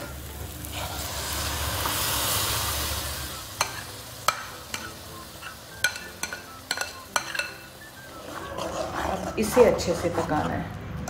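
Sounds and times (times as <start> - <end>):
puree sizzling in hot pan: 0.0 - 9.8
metal ladle clinking and scraping: 4.7 - 7.7.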